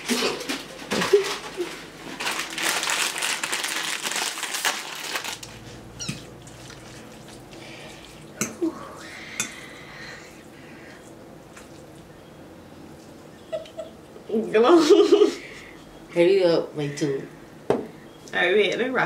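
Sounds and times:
fork clinking against ceramic bowls: 9.4s - 9.7s.

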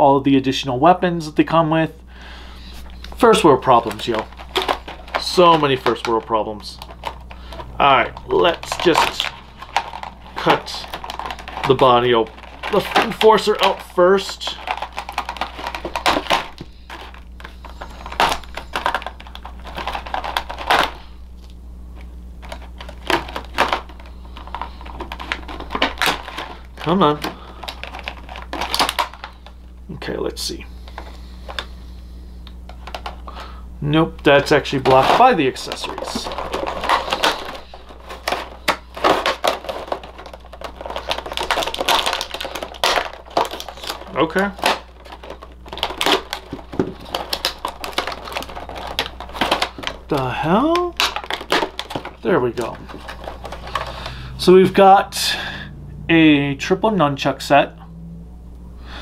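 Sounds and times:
plastic packaging being cut: 3.4s - 21.0s, 22.5s - 29.4s, 34.3s - 54.4s.

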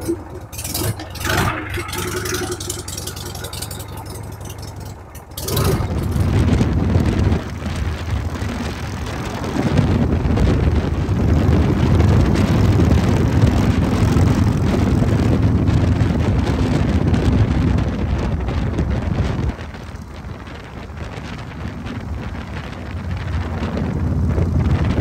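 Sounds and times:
motorcycle engine running: 0.0s - 25.0s
wind noise on microphone: 0.0s - 25.0s.

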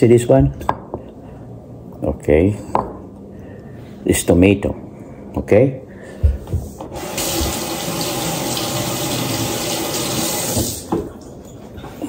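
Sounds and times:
tap water running into sink: 6.9s - 11.3s.

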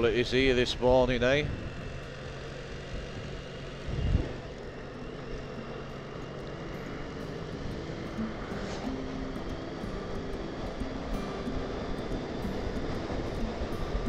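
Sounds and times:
motorcycle engine running: 0.0s - 14.0s
wind noise: 2.8s - 4.6s.

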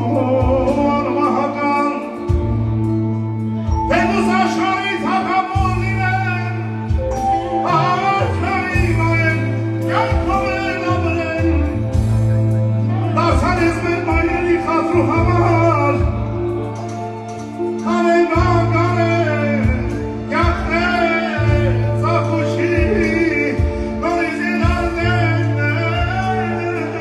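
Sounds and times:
man singing into microphone: 0.0s - 2.3s, 3.9s - 6.8s, 7.5s - 11.8s, 17.8s - 27.0s
band with keyboard: 0.0s - 27.0s.

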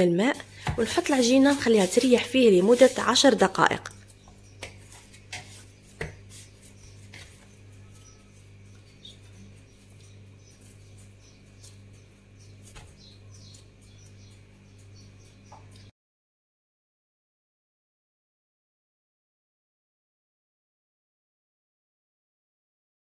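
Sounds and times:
steady low hum: 0.0s - 15.9s
hands kneading bread dough: 0.2s - 14.9s.

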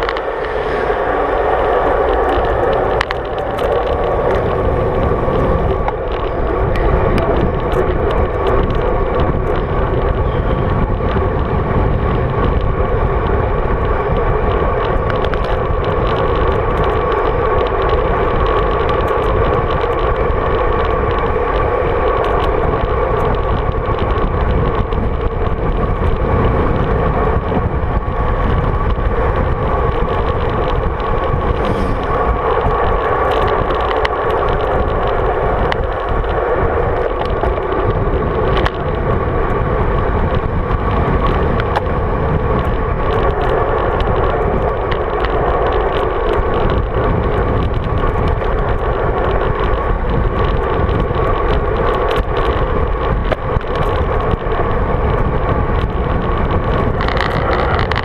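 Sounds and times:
wind and road rush: 0.0s - 58.0s
small clicks and knocks: 55.8s - 58.0s.

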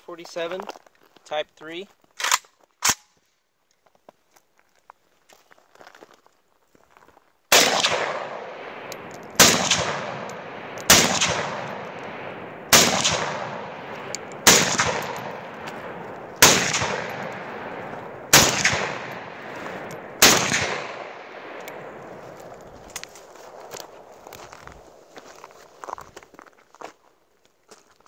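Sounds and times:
rifle shots with echo: 7.5s - 25.1s.

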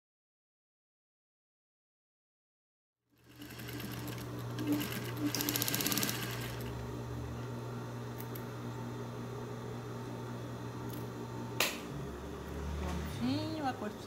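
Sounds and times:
sewing machine motor hum: 3.1s - 7.4s
rapid machine stitching: 3.2s - 6.7s.

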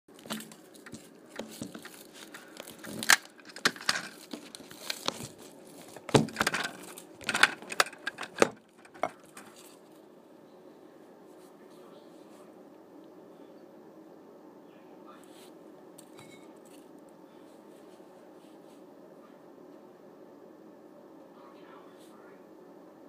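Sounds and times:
faint steady hum: 0.1s - 23.0s
phone handling rustling and clicks: 0.2s - 9.8s.

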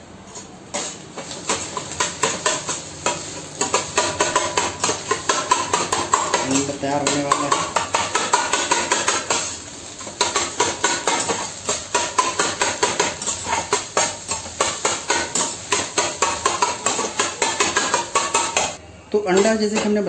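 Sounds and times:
metal spatula scraping frying pan: 0.3s - 18.8s.

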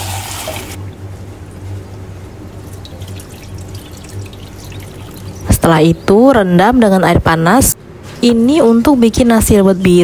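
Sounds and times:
water dripping and trickling: 2.6s - 5.6s.

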